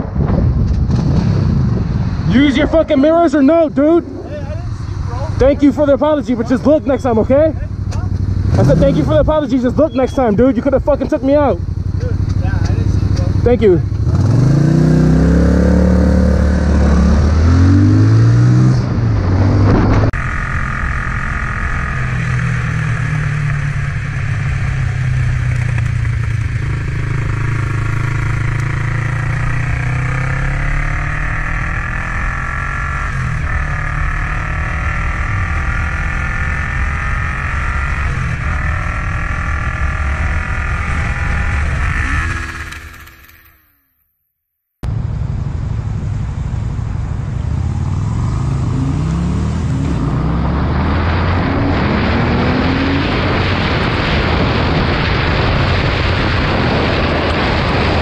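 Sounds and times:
wind noise: 0.0 - 5.5, 13.9 - 32.3, 48.4 - 58.0
motorcycle engine: 0.0 - 44.2, 44.8 - 58.0.

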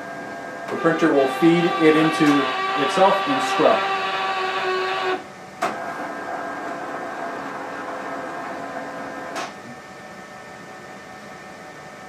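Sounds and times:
printer motor whirring: 0.2 - 9.3.

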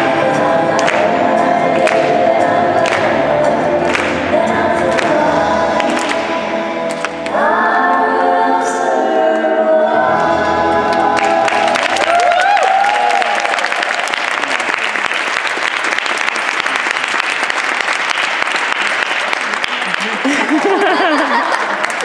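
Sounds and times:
choral music: 0.0 - 14.6
audience applause: 11.1 - 22.0.

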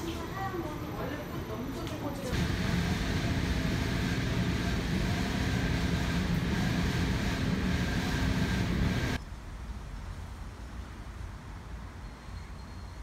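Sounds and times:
tumble dryer rumbling: 2.3 - 9.2.

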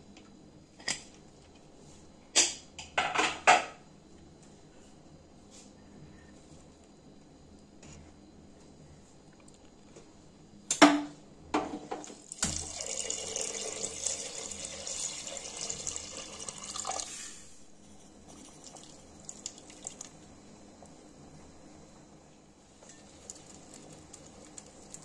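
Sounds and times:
liquid pouring and splashing: 12.2 - 17.1.

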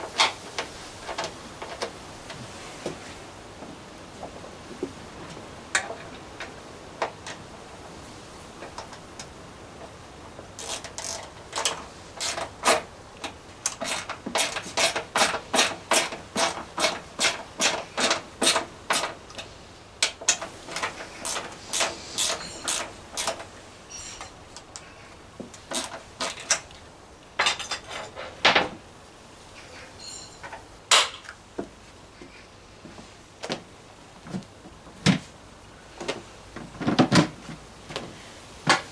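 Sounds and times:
ratchet tool clicking: 10.6 - 12.8, 21.2 - 23.4.

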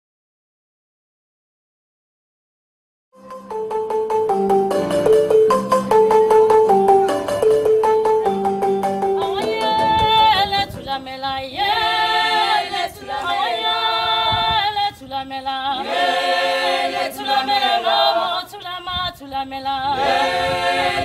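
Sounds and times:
voices singing a cappella: 9.2 - 21.0.

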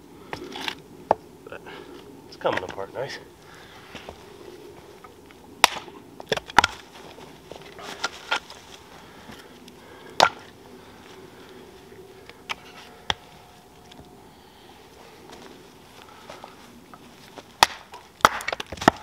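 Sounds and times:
axe splitting log: 5.6 - 6.8, 17.6 - 19.0
wooden knocks of logs: 5.6 - 6.8, 17.6 - 19.0.

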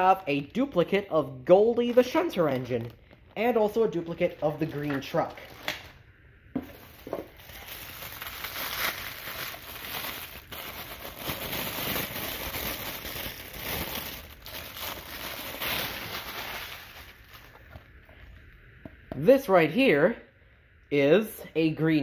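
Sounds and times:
plastic wrapping crinkling: 0.4 - 6.0, 6.6 - 18.0.

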